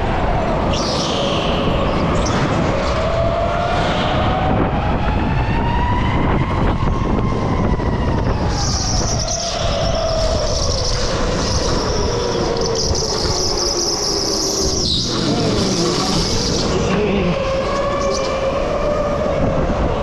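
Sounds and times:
high squeal: 0.7 - 2.6, 8.5 - 18.7
kart and tyres rumbling: 8.5 - 20.0.

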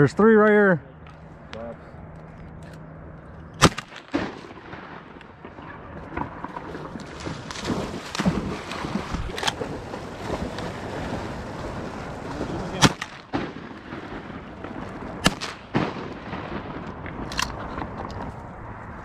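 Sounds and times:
shotgun shots: 3.6 - 9.7, 12.7 - 17.8.

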